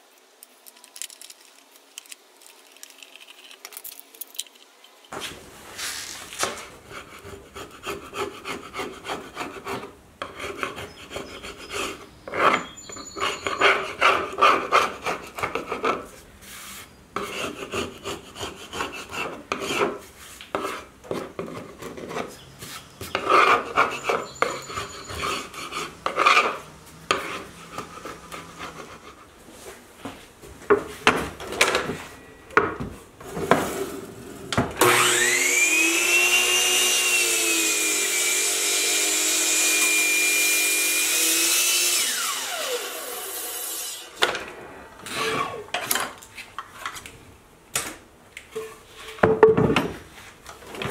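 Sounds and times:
miter saw whining: 0:34.8 - 0:45.7.

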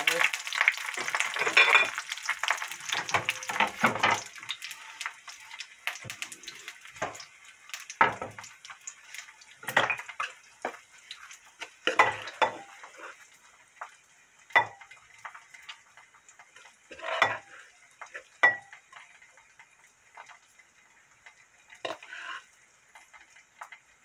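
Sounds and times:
utensil knocking frying pan: 0:02.9 - 0:04.3, 0:07.9 - 0:08.5.

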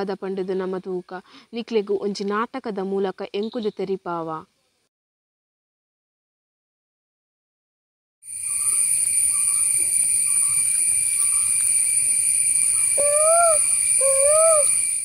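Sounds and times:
high-pitched insect drone: 0:08.3 - 0:15.0
hooting calls through cupped hands: 0:12.7 - 0:15.0.

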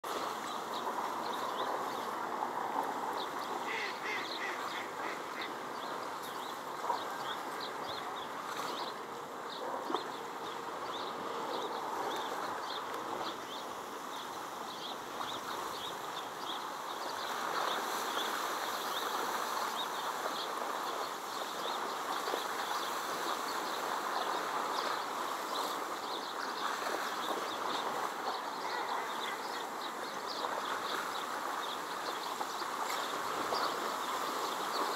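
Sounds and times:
ducks calling: 0:03.5 - 0:05.7.

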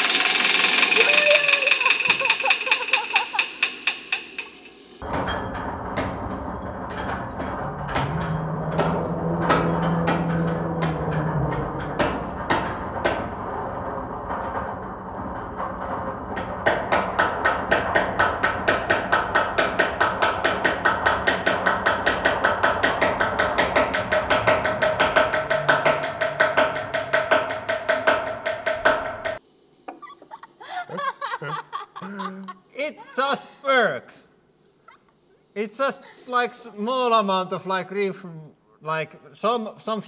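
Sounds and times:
rapid metal-on-metal hammer strikes: 0:00.0 - 0:05.1, 0:11.8 - 0:29.4.

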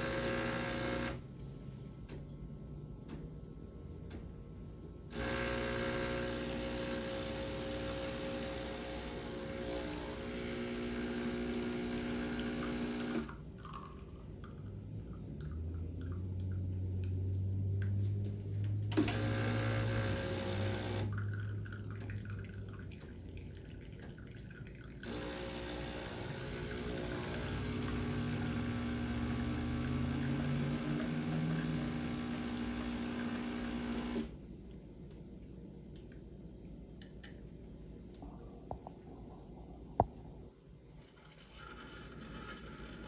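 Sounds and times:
espresso machine pump buzzing: 0:00.0 - 0:01.2, 0:05.1 - 0:14.0, 0:18.9 - 0:21.2, 0:25.0 - 0:34.4.

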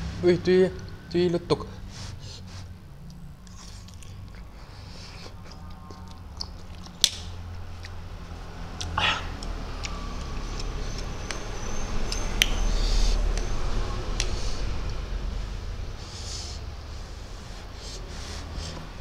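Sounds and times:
chewing and slurping noodles: 0:02.5 - 0:15.0
breathy puff: 0:09.0 - 0:09.4.

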